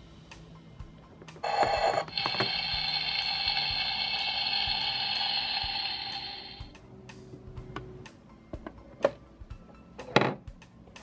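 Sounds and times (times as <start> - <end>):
electronic frying sizzle: 1.4 - 6.7
electronic toy sound effect: 1.4 - 6.7.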